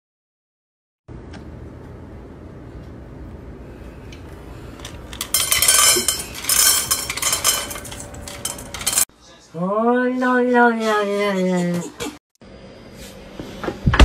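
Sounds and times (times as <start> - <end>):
dry food clattering in metal bowl: 4.8 - 9.1
metal bowl ringing: 5.2 - 9.0.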